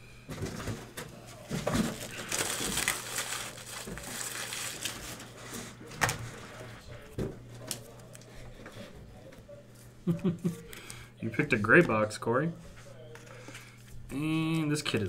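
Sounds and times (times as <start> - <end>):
plastic packaging crinkling: 1.6 - 5.6.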